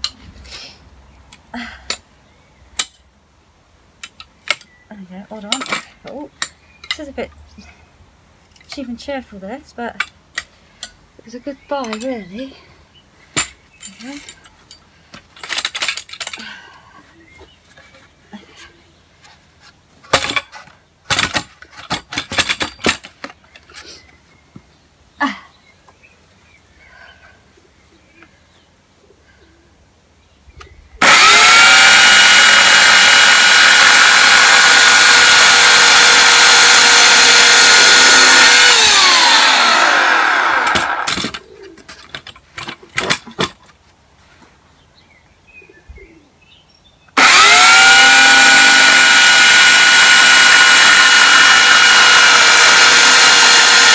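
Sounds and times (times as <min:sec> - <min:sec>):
electric chainsaw running: 0:31.0 - 0:41.4, 0:47.2 - 0:53.9.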